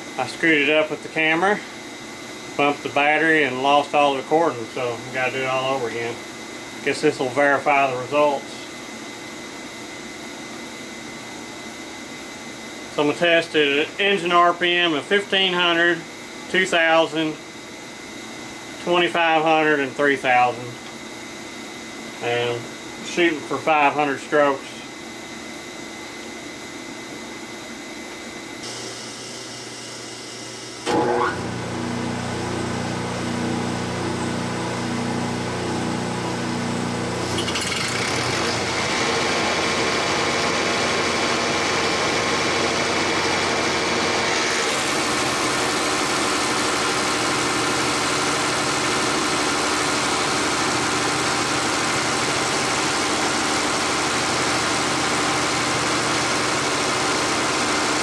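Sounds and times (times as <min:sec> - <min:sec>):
steady hum: 0:00.0 - 0:57.6
test stand machine running: 0:28.4 - 0:58.0.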